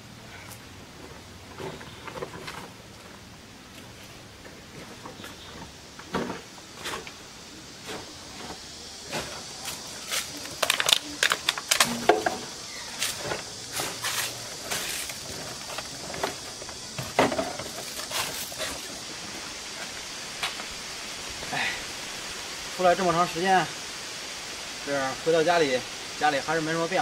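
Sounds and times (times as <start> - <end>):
steady high hiss: 0.0 - 27.0
crinkles and clicks of scrap: 8.0 - 12.4
plastic sack rustling: 12.9 - 19.9.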